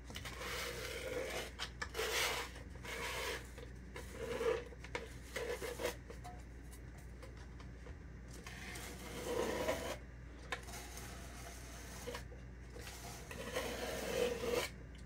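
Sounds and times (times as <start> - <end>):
scraper rasping frosting: 0.1 - 6.0, 8.4 - 10.0, 10.6 - 14.8.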